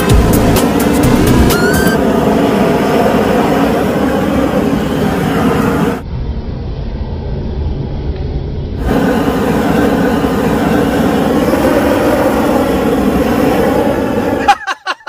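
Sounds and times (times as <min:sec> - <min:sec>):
gas torch flame rushing: 0:00.0 - 0:06.0, 0:08.8 - 0:14.8.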